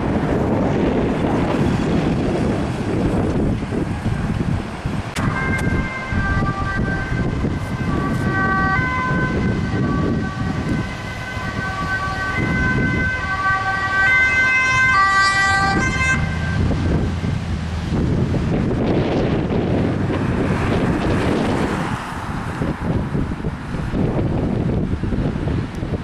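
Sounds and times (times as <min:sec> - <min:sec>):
traffic: 0:00.0 - 0:26.0
wind noise on microphone: 0:00.0 - 0:26.0
two-tone police siren: 0:05.2 - 0:17.4.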